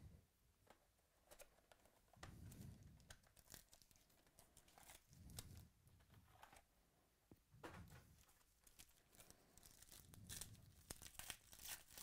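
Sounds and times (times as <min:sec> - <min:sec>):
plastic wrap crinkling and tearing: 0:03.0 - 0:05.6, 0:08.2 - 0:12.0.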